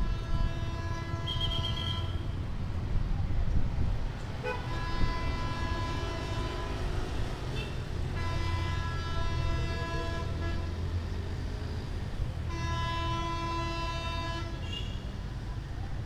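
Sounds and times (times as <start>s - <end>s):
train horn blasts: 0.0s - 2.3s, 4.4s - 10.8s, 12.5s - 15.0s
road traffic rumble: 0.0s - 16.0s.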